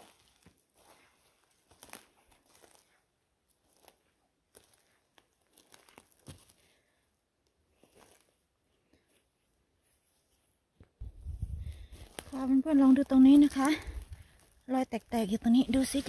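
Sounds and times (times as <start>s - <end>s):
footsteps on forest floor: 0.0s - 6.8s, 7.7s - 8.4s, 11.1s - 16.0s
dry twigs snapping underfoot: 1.5s - 2.9s, 3.6s - 6.6s, 11.7s - 12.5s.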